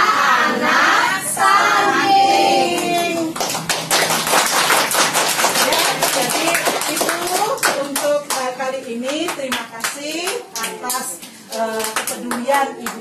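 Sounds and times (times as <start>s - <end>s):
children and women singing: 0.0s - 3.4s
hand-clapping: 2.7s - 13.0s.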